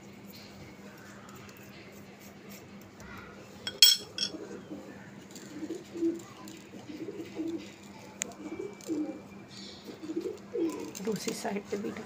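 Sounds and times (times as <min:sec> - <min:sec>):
spoon clinking on glass bowl: 0:03.7 - 0:04.3
pigeon cooing: 0:04.2 - 0:11.3.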